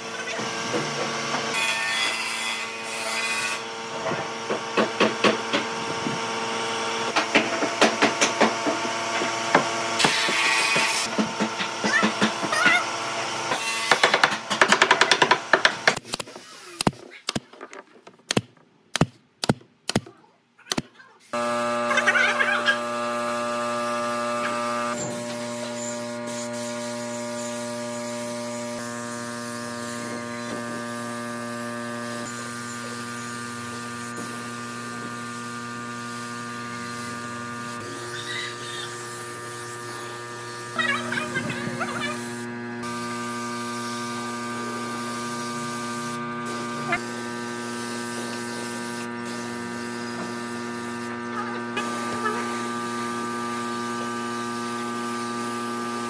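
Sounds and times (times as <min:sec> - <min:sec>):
electric motor hum: 0:21.4 - 0:56.0.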